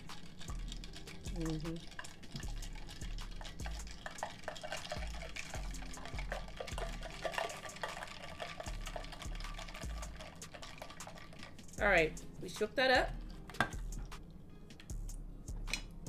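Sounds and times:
liquid sloshing in cocktail shaker: 0.0 - 12.1.

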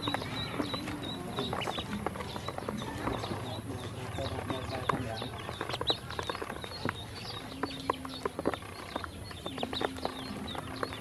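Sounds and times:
ducklings peeping: 0.0 - 11.0.

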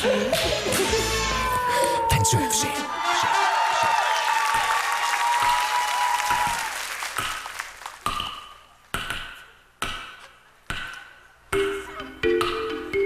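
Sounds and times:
audience applause: 1.6 - 8.0.

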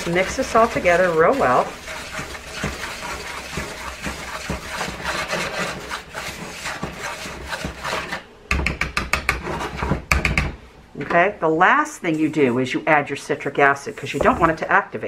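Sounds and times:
whisk stirring powder in bowl: 0.0 - 8.2, 11.9 - 14.8
whisk tapping against bowl: 0.0 - 9.4.

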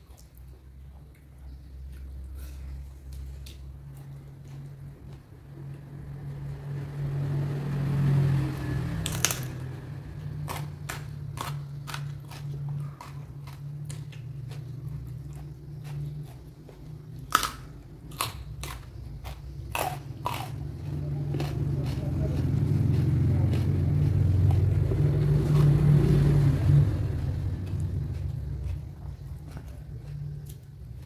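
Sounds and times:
person chewing crunchy food: 9.0 - 31.0.

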